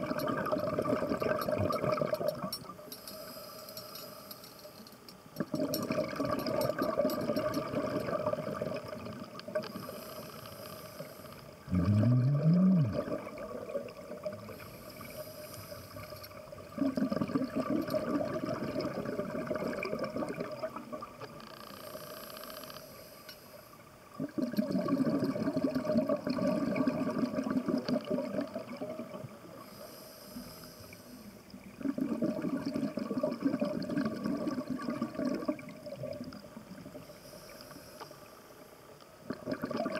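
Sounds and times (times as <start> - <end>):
exhaled bubbles underwater: 0.0 - 2.5, 5.4 - 9.9, 11.5 - 15.2, 15.9 - 21.2, 24.1 - 29.6, 31.6 - 37.0, 39.2 - 39.9
hiss of inhaled air: 14.5 - 16.2, 29.6 - 31.4, 37.0 - 38.4.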